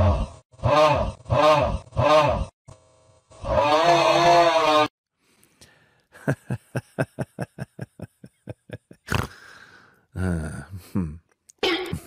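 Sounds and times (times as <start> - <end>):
low voice-like sound: 10.1 - 11.3.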